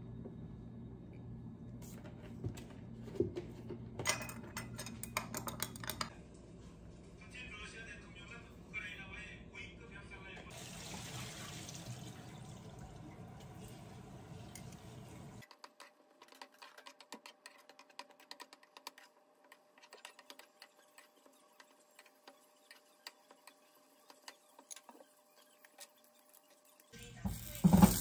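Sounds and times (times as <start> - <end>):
spatula scraping frying pan: 15.4 - 28.0.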